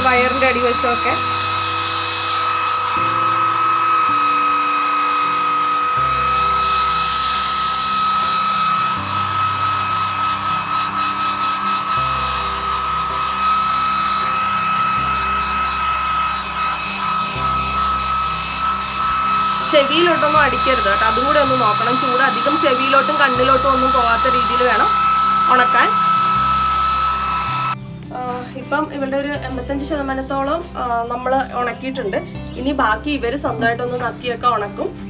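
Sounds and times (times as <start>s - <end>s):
hair dryer whining: 0.0s - 27.8s
background music: 0.0s - 35.0s.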